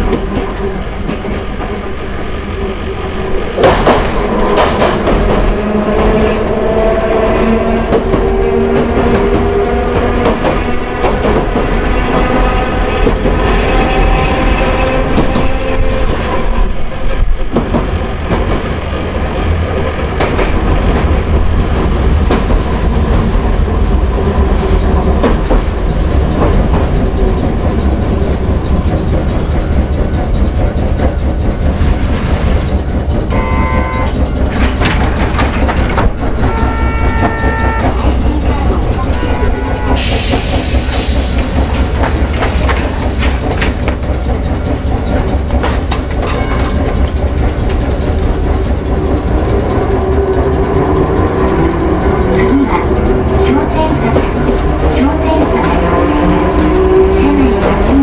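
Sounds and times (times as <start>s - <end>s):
tram motors whining: 0.0s - 58.0s
wheels rumbling on track: 0.0s - 58.0s.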